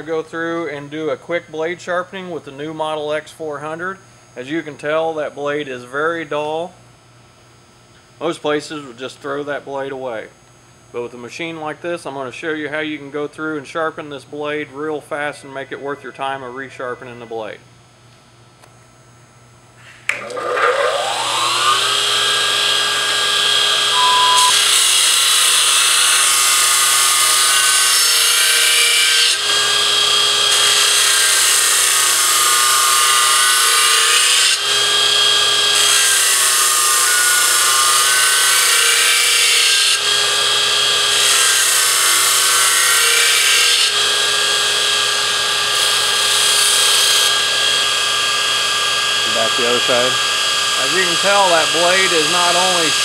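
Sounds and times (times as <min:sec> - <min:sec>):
motor hum: 0:19.9 - 0:26.0
belt grinder motor whine: 0:20.1 - 0:53.0
steel blade grinding on belt: 0:49.3 - 0:53.0.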